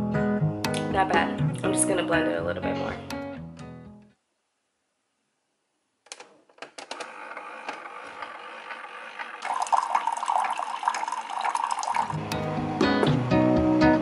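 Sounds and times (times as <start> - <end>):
hot water pouring into mug: 7.4 - 12.2.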